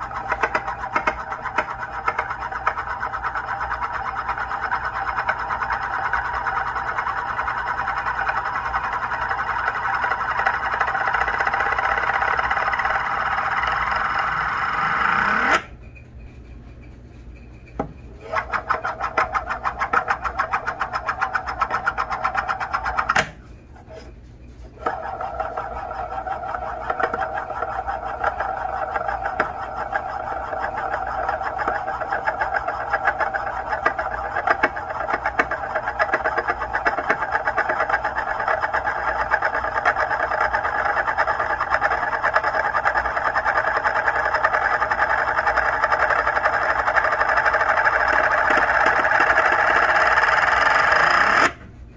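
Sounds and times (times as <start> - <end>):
disc clattering: 0.0 - 13.4
metal disc whirring on wood: 0.0 - 51.8.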